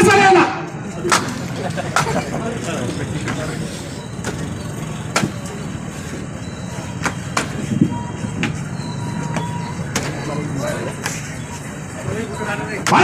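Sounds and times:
crowd murmuring and shuffling: 0:00.0 - 0:13.0
sharp knocks or clicks: 0:05.1 - 0:05.4.

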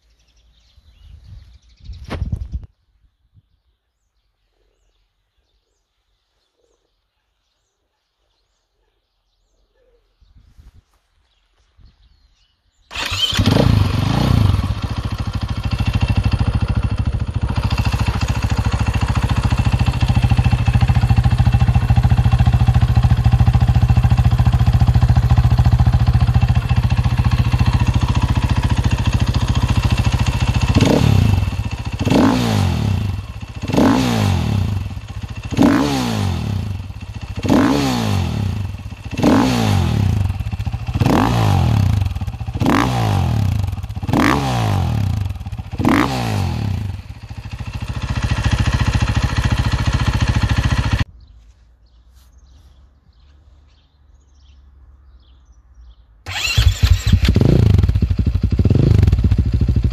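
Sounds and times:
dirt bike engine revving and idling: 0:12.9 - 0:51.3, 0:56.3 - 0:59.9.

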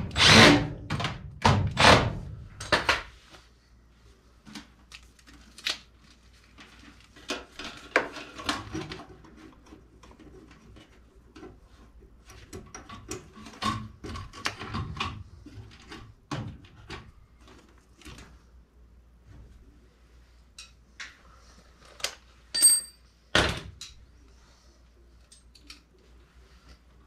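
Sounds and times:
tools and metal parts clattering: 0:22.5 - 0:23.0.

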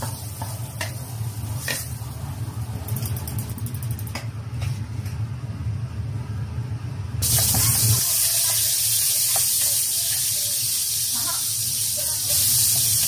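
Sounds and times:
meat sizzling in a wok: 0:00.0 - 0:02.5, 0:07.2 - 0:13.0.

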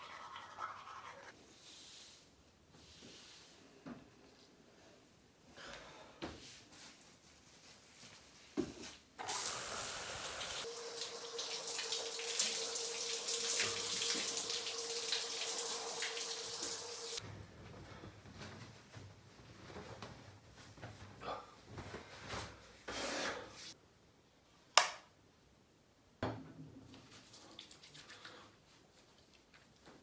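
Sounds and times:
broom brushing wooden floor: 0:01.4 - 0:03.6
water spraying from shower head: 0:09.2 - 0:17.2.

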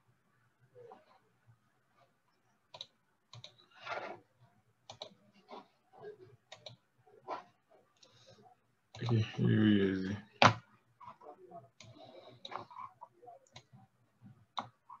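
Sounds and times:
keyboard and mouse clicks: 0:02.7 - 0:03.7, 0:04.8 - 0:05.6, 0:06.5 - 0:07.4, 0:08.9 - 0:09.2, 0:11.8 - 0:13.9, 0:14.5 - 0:15.0.

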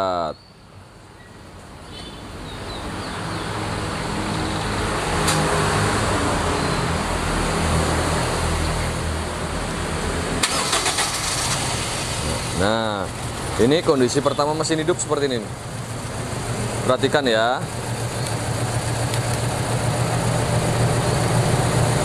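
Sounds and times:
car engine starting and running: 0:04.9 - 0:22.0
sharp clicks: 0:18.2 - 0:19.5.

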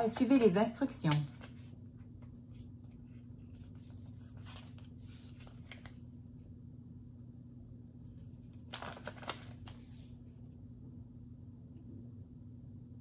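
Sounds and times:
paper leaflet rustling: 0:00.0 - 0:06.1, 0:08.1 - 0:10.2
faint steady low hum: 0:00.0 - 0:13.0.

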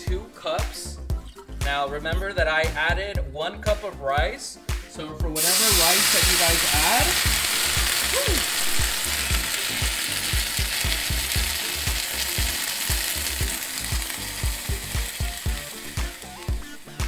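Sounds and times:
water pouring into pan: 0:05.4 - 0:16.7
sizzling and hissing steam: 0:05.4 - 0:17.0.

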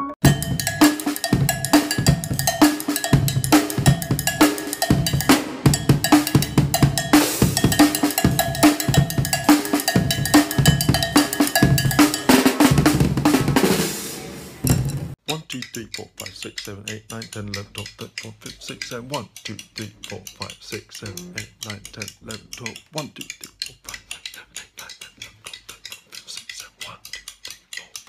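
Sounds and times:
drum kit groove: 0:00.0 - 0:15.2.

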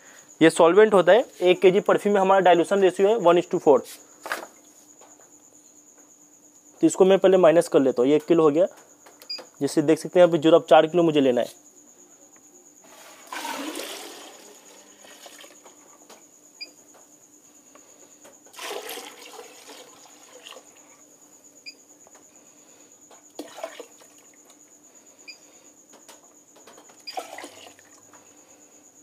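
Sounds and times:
liquid pouring into bucket: 0:12.8 - 0:15.8, 0:18.5 - 0:21.0, 0:23.4 - 0:24.4, 0:27.0 - 0:28.0.

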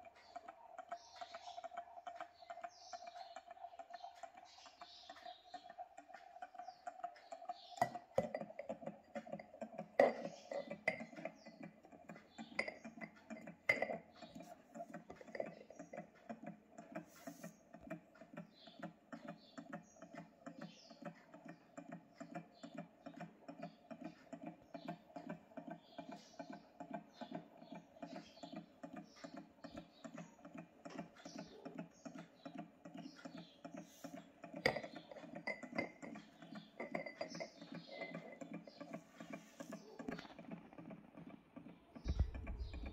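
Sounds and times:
stirling engine rhythmic ticking: 0:00.0 - 0:42.9.

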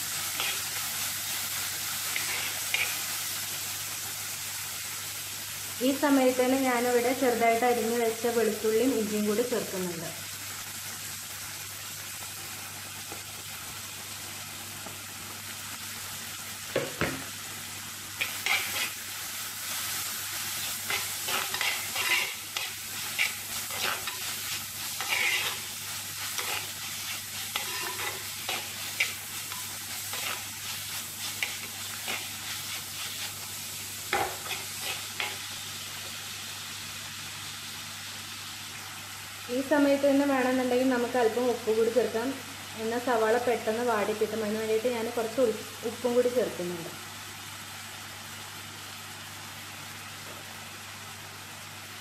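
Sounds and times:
food sizzling in oil: 0:00.0 - 0:52.0
spoon scraping clay pot: 0:20.9 - 0:24.3.

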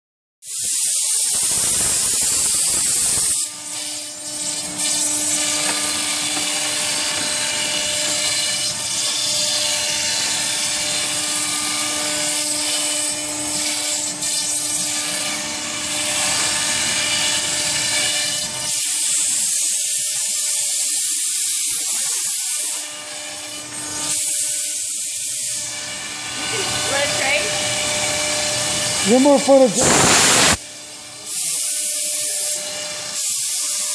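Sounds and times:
cutter hissing through foam: 0:00.4 - 0:09.4, 0:12.4 - 0:33.9
compressed air blow gun hiss: 0:29.6 - 0:30.6.

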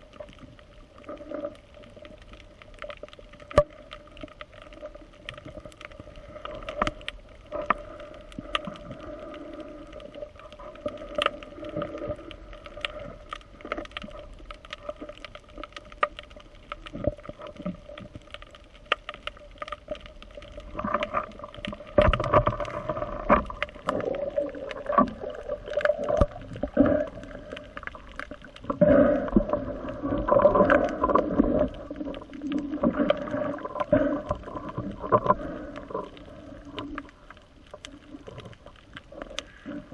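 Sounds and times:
gurgling water: 0:00.0 - 0:39.9
muffled underwater murmur: 0:28.6 - 0:36.8.

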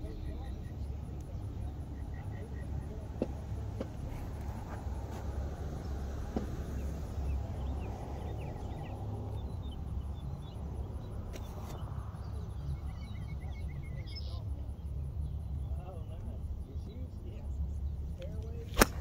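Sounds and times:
low outdoor rumble: 0:00.0 - 0:19.0
faint bird chirps: 0:06.6 - 0:18.0
sharp crack: 0:18.6 - 0:19.0.

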